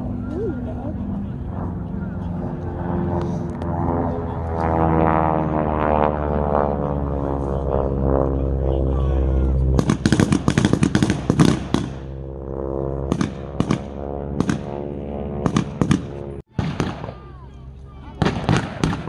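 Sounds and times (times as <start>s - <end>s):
engine drone: 0.0s - 16.5s
blank gunshots: 15.4s - 17.2s, 18.2s - 19.0s.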